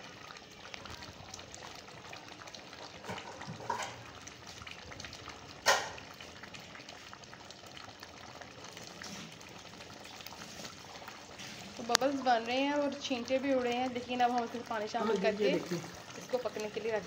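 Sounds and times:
curry bubbling and spitting: 0.0 - 17.0.

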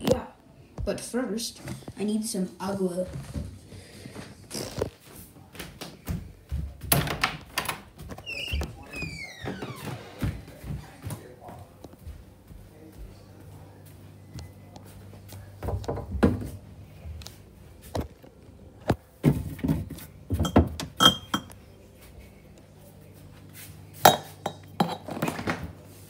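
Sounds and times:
glassware clinking: 20.4 - 21.5, 24.0 - 25.4.

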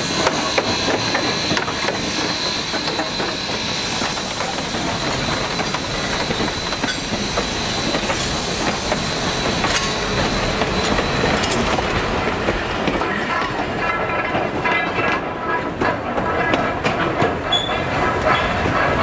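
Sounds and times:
train wheels rumbling on rail: 0.0 - 19.0
wheels clicking over rail joints: 5.4 - 19.0.

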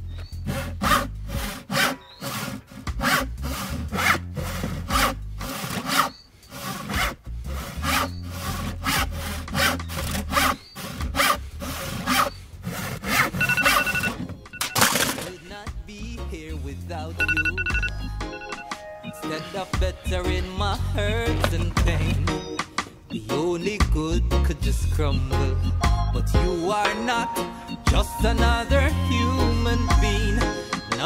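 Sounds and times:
handsaw cutting wood: 0.3 - 13.7
phone alarm beeping: 13.3 - 15.7, 17.2 - 19.5.

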